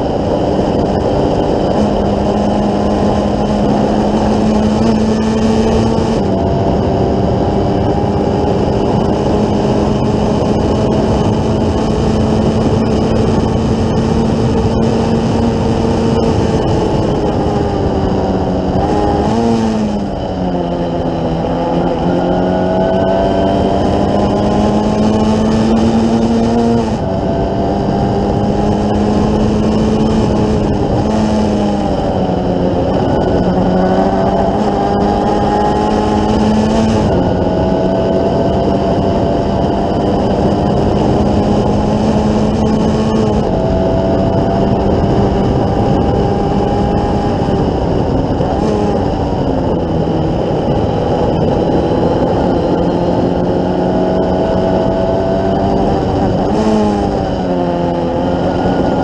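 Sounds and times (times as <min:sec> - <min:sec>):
race car engine accelerating: 0:00.0 - 0:59.0
wind and road noise: 0:00.0 - 0:59.0.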